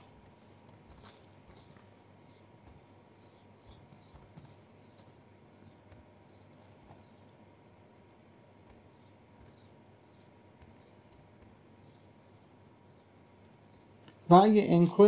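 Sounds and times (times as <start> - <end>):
faint keyboard keystrokes: 3.6 - 7.2, 10.6 - 11.6.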